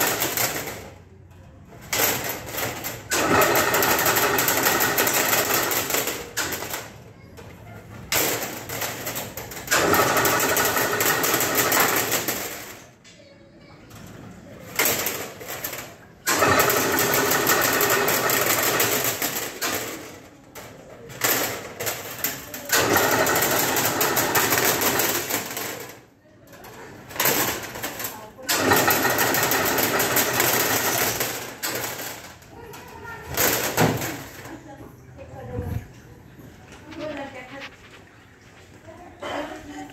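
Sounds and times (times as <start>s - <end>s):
mesh weaving machine running: 1.9s - 6.8s, 9.6s - 12.6s, 15.6s - 20.0s, 22.7s - 25.9s, 27.2s - 32.2s.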